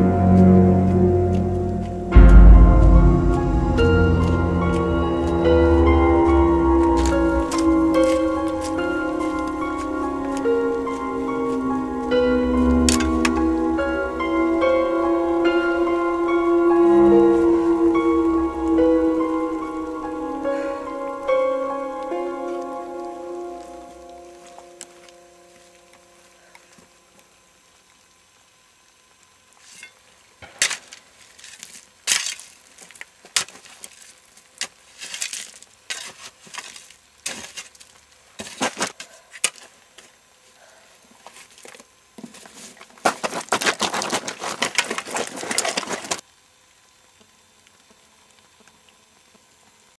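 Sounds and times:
stick scraping through gravel: 30.6 - 39.7, 41.3 - 46.2.

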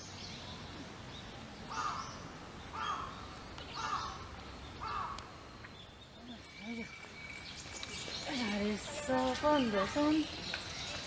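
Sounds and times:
outdoor background noise: 0.0 - 11.0
crow cawing: 1.7 - 2.1, 2.7 - 3.2, 3.8 - 4.2, 4.8 - 5.3.

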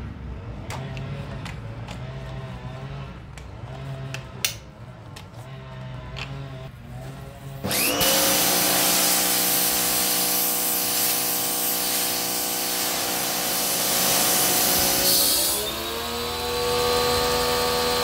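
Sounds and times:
pressure washer motor hum: 7.6 - 18.0
water jet hissing onto paving: 8.3 - 15.6.

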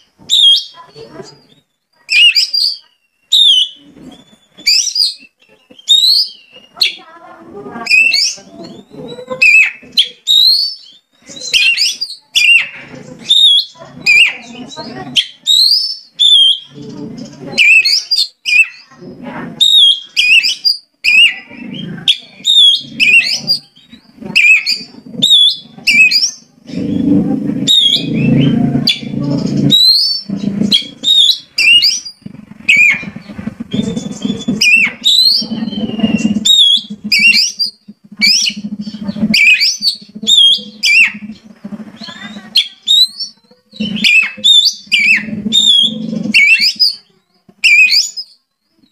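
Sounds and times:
bird singing whistled notes: 0.3 - 7.1, 7.8 - 18.9, 19.6 - 48.9
low rough rumble: 21.4 - 47.0.

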